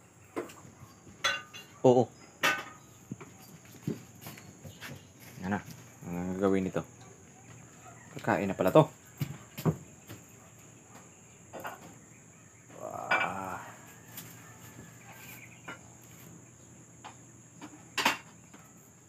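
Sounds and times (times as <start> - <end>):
metal pots and dishes clinking: 1.2 - 1.8, 2.4 - 2.8, 18.0 - 18.3.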